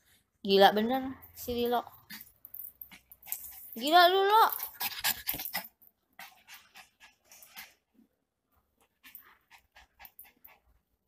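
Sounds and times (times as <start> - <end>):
dog panting: 2.1 - 3.9, 4.5 - 8.0, 8.8 - 11.0.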